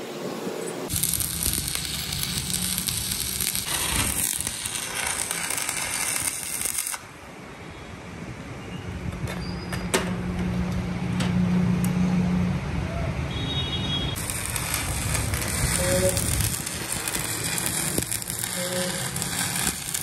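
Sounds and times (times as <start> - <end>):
welding arc hissing: 0.9 - 7.2, 14.1 - 20.0.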